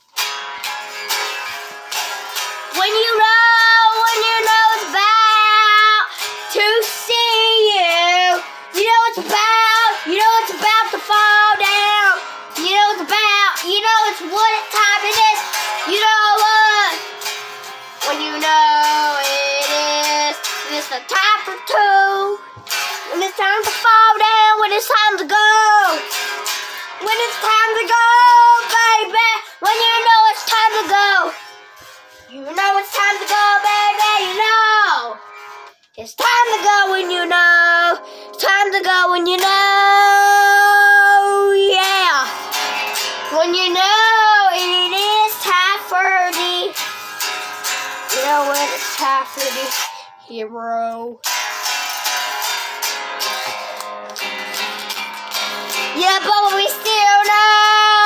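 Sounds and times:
electric guitar strumming: 0.0s - 50.3s, 51.0s - 58.0s
child singing: 2.7s - 26.3s, 27.0s - 31.4s, 32.3s - 35.3s, 36.0s - 46.9s, 47.5s - 51.3s, 55.7s - 58.0s.

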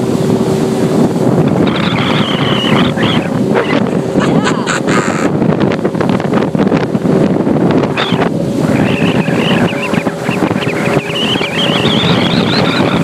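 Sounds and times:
outboard motor running: 0.0s - 13.0s
rushing water: 0.0s - 13.0s
wind buffeting microphone: 0.0s - 13.0s
wavering high whistle: 8.8s - 13.0s.

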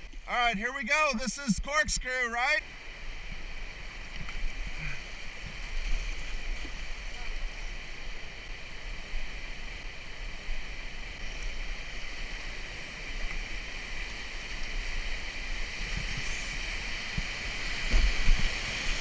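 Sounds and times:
whitewater rushing: 1.0s - 19.0s.

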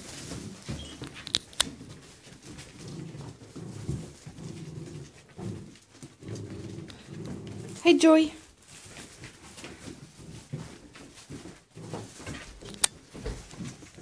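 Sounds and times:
dogs growling: 1.8s - 8.1s.

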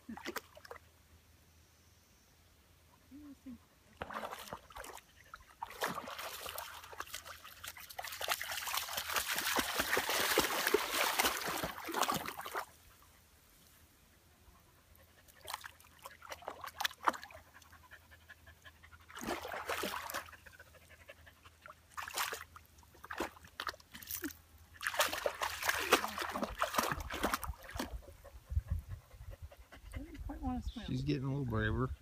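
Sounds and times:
dog splashing in water: 4.0s - 5.0s, 5.6s - 12.7s, 15.4s - 17.4s, 19.1s - 20.4s, 21.9s - 28.0s.

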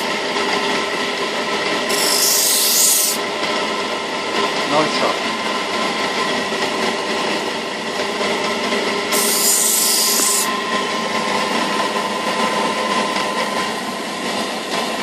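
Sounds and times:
wheel motor hum and whine: 0.0s - 15.0s
knife on grinding wheel hissing: 1.9s - 3.2s, 9.1s - 10.6s.

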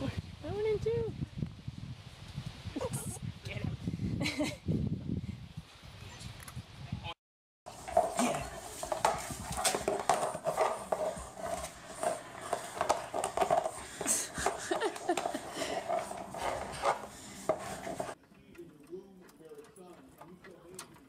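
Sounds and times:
plastic frisbee scraping on hard floor: 7.7s - 18.2s.

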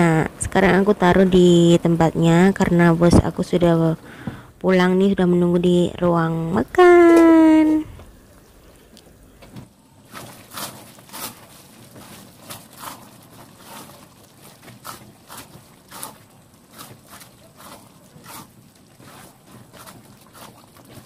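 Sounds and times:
spatula scraping a wok: 10.2s - 21.0s.

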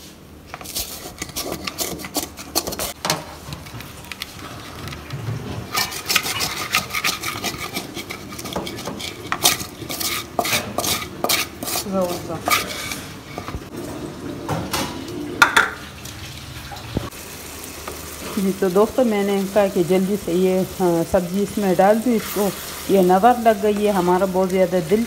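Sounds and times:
spatula scraping metal wok: 0.0s - 3.5s, 5.5s - 13.7s.

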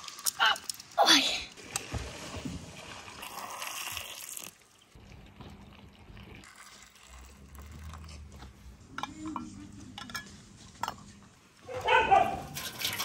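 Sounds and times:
liquid pouring into glass jar: 1.6s - 8.3s, 12.4s - 13.0s.

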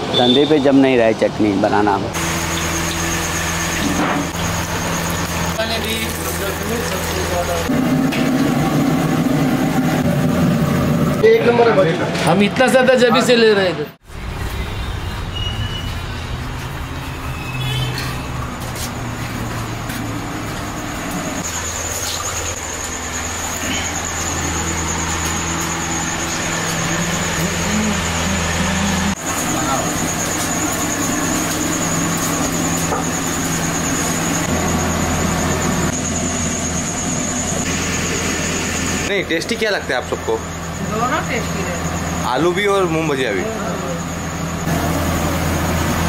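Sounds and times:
distant traffic rumble: 0.0s - 13.4s, 14.0s - 46.0s
batter sizzling in hot oil: 2.2s - 7.6s
low machine hum: 18.4s - 46.0s.

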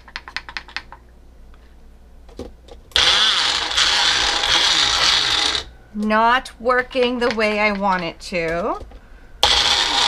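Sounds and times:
blender motor chopping: 2.9s - 5.7s, 9.4s - 10.0s.

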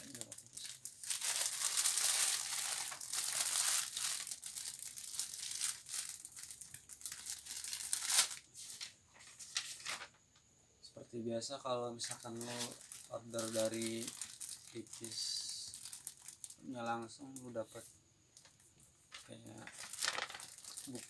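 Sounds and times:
plastic packaging crinkling: 0.0s - 10.2s, 12.0s - 17.6s, 18.4s - 21.0s
paper slip rustling: 7.2s - 10.2s, 12.0s - 14.1s, 19.1s - 21.0s.

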